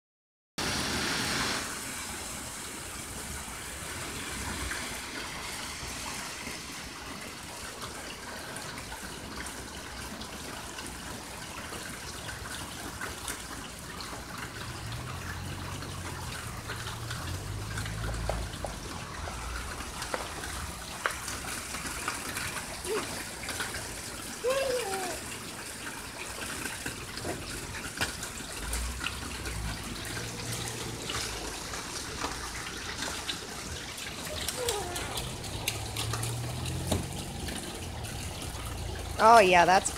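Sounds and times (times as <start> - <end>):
water running from downspout: 0.6 - 39.9
water splashing into puddle: 0.9 - 39.9
small splashes and knocks: 11.8 - 39.8.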